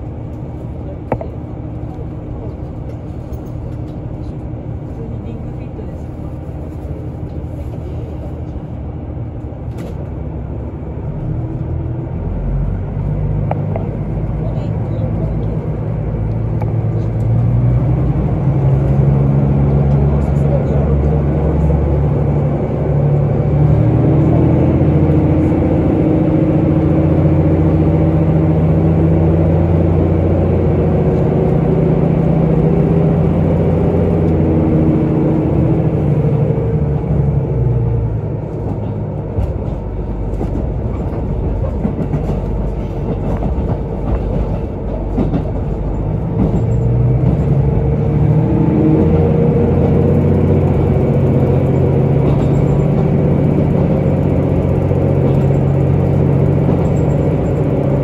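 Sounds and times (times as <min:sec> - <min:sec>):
railcar diesel engine droning: 0:00.0 - 0:58.0.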